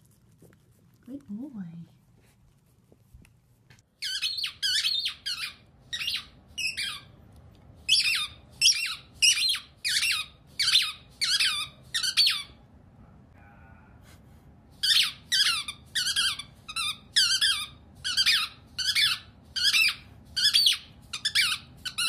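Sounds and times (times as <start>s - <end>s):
rubber squeaky toy squeaking: 4.0s - 7.1s, 7.9s - 12.6s, 14.8s - 22.0s.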